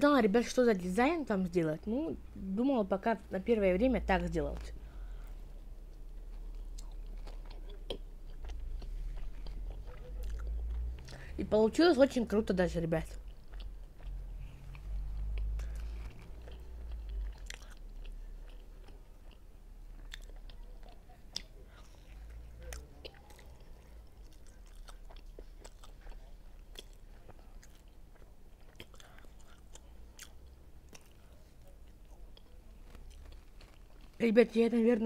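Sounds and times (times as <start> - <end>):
person chewing and biting: 6.0 - 11.2, 13.2 - 34.2.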